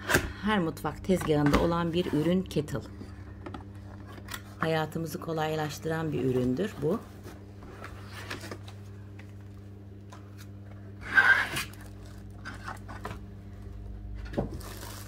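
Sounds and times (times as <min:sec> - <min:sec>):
cardboard tearing scrape: 0:11.0 - 0:12.7, 0:14.5 - 0:15.0.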